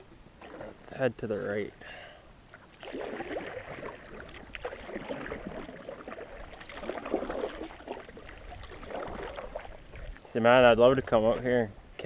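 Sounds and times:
canoe paddles dipping in water: 0:00.0 - 0:01.5, 0:02.5 - 0:12.0
water splashes and drips: 0:02.5 - 0:11.7.

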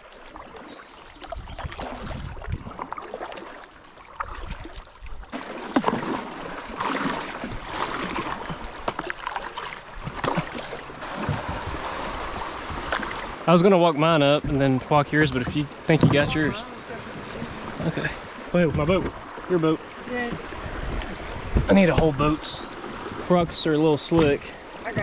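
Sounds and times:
paddle strokes splashing: 0:00.0 - 0:25.0
paddle knocks: 0:05.4 - 0:13.4, 0:14.4 - 0:17.4, 0:18.6 - 0:19.3, 0:20.2 - 0:22.4, 0:24.0 - 0:25.0.

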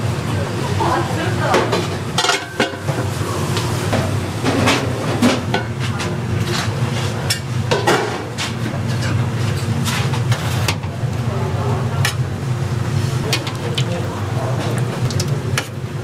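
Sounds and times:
steady low hum: 0:00.0 - 0:16.0
utensils and dishes clattering: 0:00.8 - 0:03.1, 0:03.9 - 0:11.0, 0:13.2 - 0:15.8.

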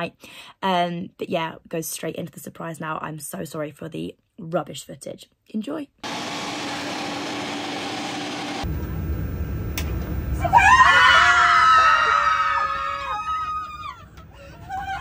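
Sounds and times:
low rumble: 0:08.6 - 0:10.5
high-pitched excited screaming: 0:10.4 - 0:15.0.

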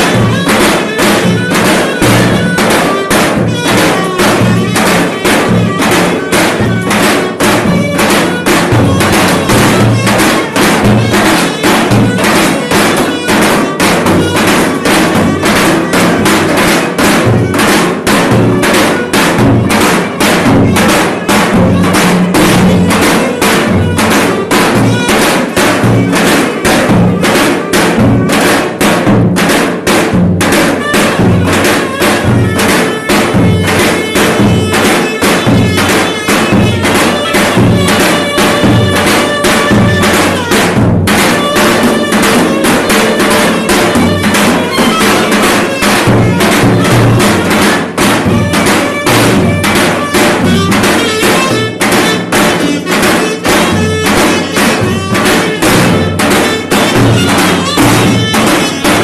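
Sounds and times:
reed wind instrument melody: 0:00.0 - 0:28.8, 0:30.7 - 0:59.0
bass drums beating: 0:00.0 - 0:59.0.

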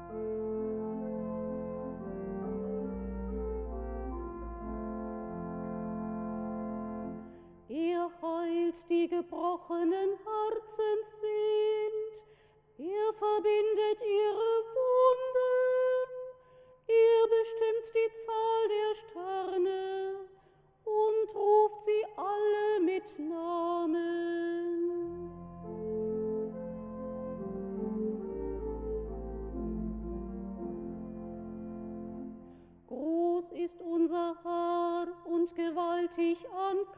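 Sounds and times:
instrument held chord: 0:00.0 - 0:07.5, 0:25.1 - 0:32.6.

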